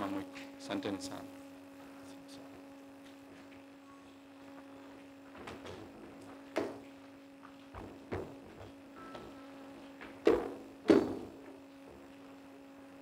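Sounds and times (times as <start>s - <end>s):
electrical hum: 0.0s - 13.0s
soft knocks: 7.7s - 9.4s, 10.0s - 12.1s.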